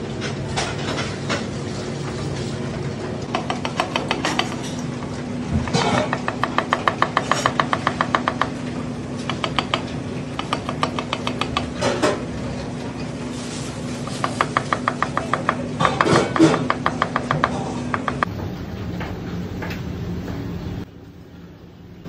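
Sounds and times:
knife chopping on plastic board: 3.3s - 4.7s, 5.6s - 8.6s, 9.2s - 11.8s, 14.1s - 18.3s.

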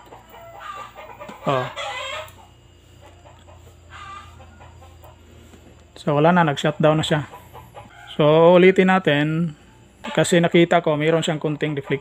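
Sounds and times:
rooster crowing: 0.0s - 5.5s, 7.5s - 10.3s
chickens clucking: 0.0s - 12.0s
low steady hum: 0.0s - 12.0s.

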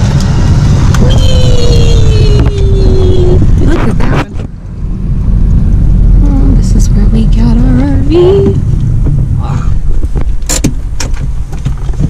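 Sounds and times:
car cabin engine rumble: 0.0s - 12.0s
long falling tone: 0.9s - 3.6s.

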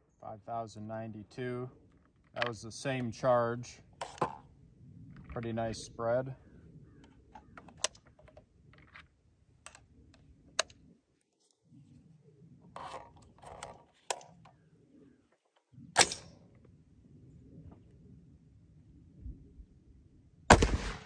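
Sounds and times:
small metallic clicks and rustling: 7.0s - 10.8s, 12.7s - 14.6s.

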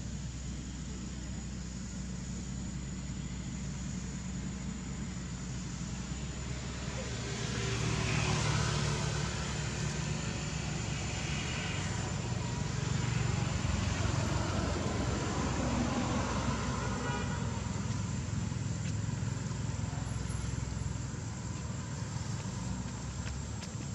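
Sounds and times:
low background rumble: 0.0s - 7.1s.

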